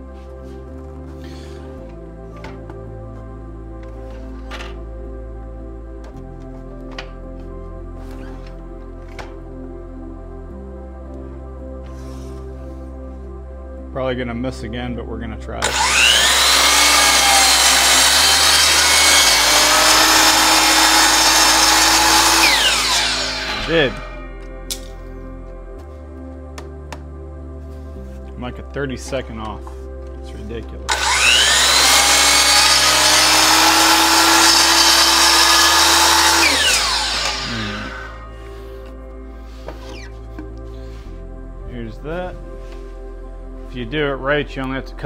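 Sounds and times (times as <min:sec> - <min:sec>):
miter saw cutting wood: 0:15.6 - 0:24.3, 0:30.9 - 0:38.4
saw motor whine spinning down: 0:15.6 - 0:24.5, 0:30.9 - 0:38.6.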